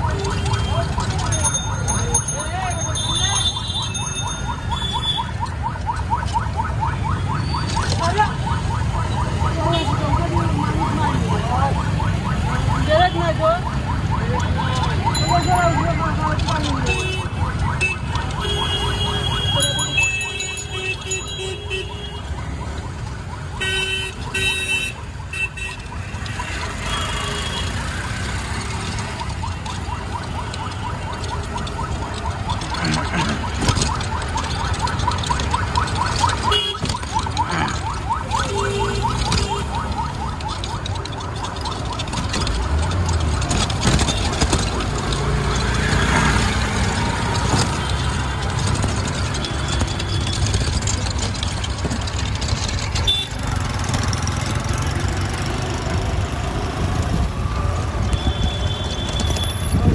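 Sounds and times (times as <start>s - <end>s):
engines and road noise: 0.0s - 59.9s.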